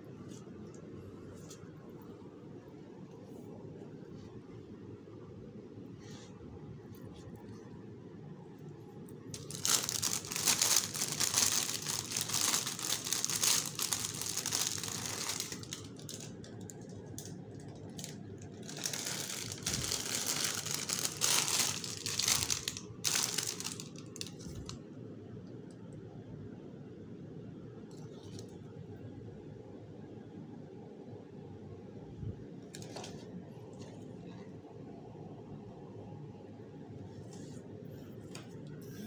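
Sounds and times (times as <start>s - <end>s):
plant wrapping crinkling: 9.3s - 24.8s.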